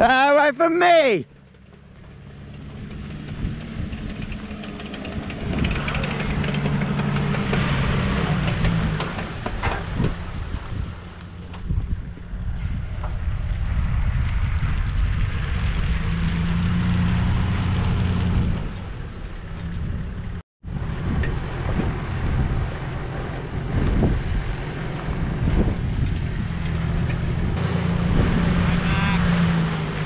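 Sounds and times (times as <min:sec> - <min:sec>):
boat motor running: 0:01.4 - 0:12.4, 0:21.0 - 0:30.0
wind buffeting microphone: 0:02.8 - 0:30.0
waves washing: 0:05.6 - 0:11.5, 0:27.6 - 0:30.0.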